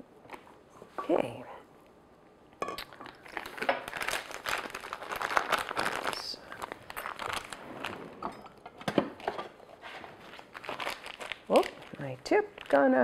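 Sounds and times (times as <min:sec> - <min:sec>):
plastic bag crinkling: 0:02.8 - 0:08.2, 0:10.0 - 0:13.0.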